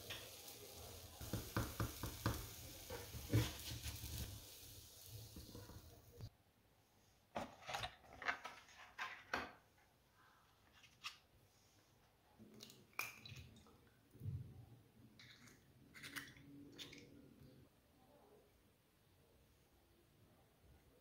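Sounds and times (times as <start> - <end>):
omelette sizzling in a pan: 0.0 - 6.3.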